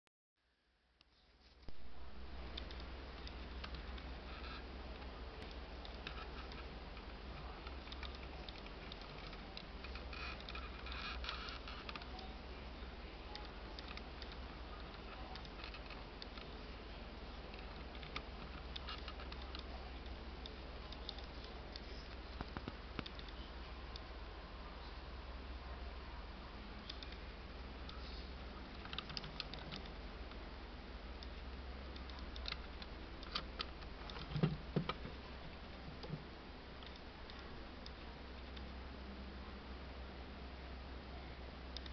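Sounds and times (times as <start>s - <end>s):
low steady hum: 0.4s - 41.9s.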